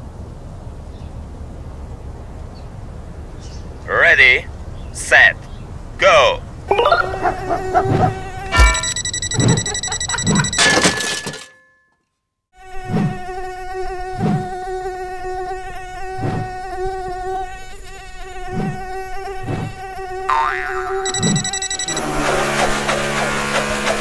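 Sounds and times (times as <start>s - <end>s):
drone propellers whining: 7.0s - 10.6s, 21.0s - 24.0s.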